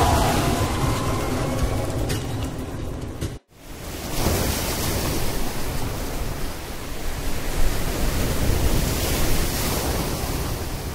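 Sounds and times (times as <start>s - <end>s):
steady rushing noise: 0.0s - 3.8s.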